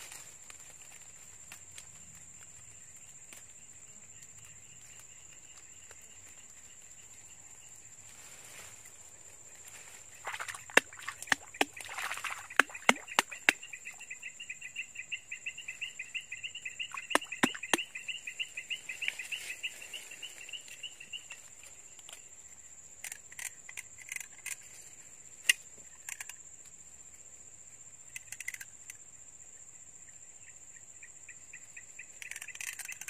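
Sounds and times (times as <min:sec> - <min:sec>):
fast insect chirps: 0:00.0 - 0:27.0, 0:27.7 - 0:33.0
high-pitched insect trill: 0:00.0 - 0:33.0
sharp clicks: 0:12.5 - 0:13.6, 0:16.9 - 0:17.9.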